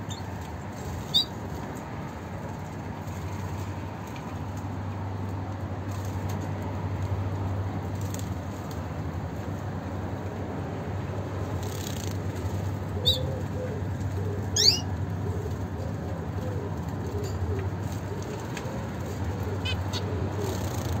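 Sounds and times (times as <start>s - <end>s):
finch calls: 1.0s - 1.4s, 13.0s - 14.9s, 19.4s - 21.0s.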